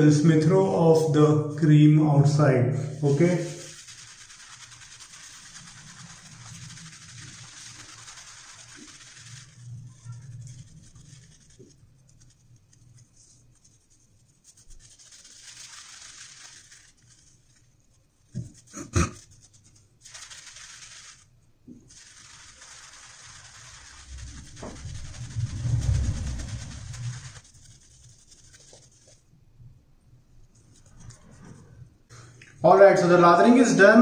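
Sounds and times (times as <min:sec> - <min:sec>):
shaving brush scrubbing: 0:02.9 - 0:29.3, 0:30.6 - 0:31.6.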